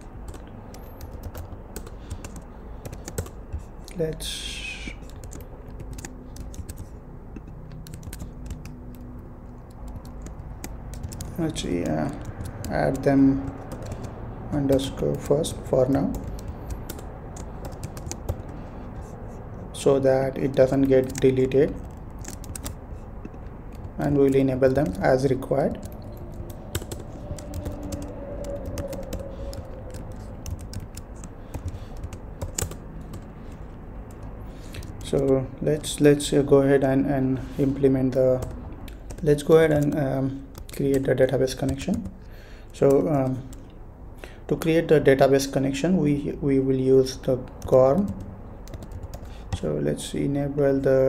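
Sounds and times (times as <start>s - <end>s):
computer keyboard typing: 0.0s - 4.0s, 4.7s - 19.1s, 20.3s - 36.3s, 38.3s - 42.2s, 47.5s - 49.7s
faint steady hum: 0.0s - 51.0s.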